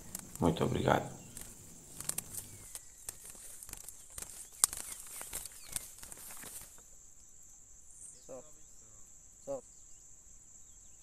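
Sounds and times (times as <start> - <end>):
sharp clicks: 0.0 - 6.8
footsteps in dry grass: 0.0 - 6.9
high insect drone: 0.0 - 11.0.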